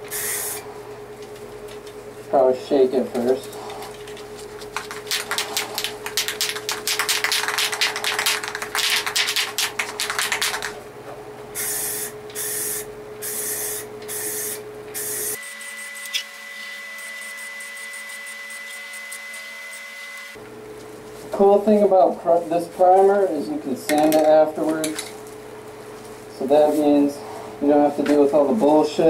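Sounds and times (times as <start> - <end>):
aerosol spray hissing: 0.1 - 0.6, 5.1 - 9.7, 11.6 - 15.4
aerosol can ball rattling: 4.0 - 10.8.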